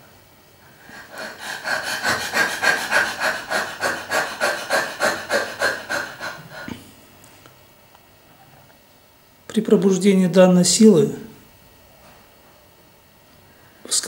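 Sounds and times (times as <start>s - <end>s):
woman panting: 0.7s - 6.8s.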